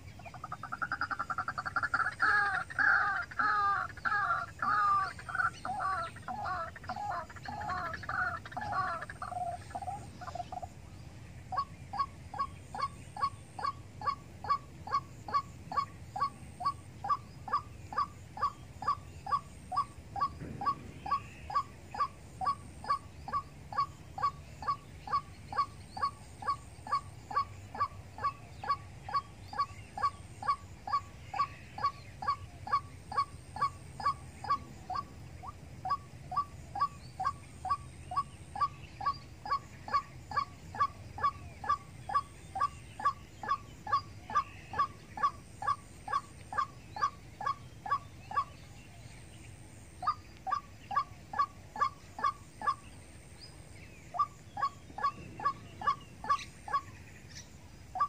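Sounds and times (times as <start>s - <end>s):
bird calling sharp notes: 11.5s - 48.7s.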